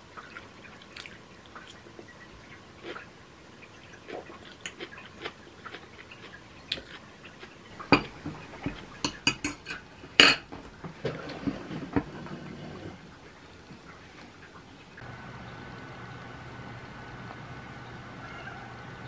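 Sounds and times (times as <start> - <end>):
cutlery clinking on plates: 7.9 - 10.5.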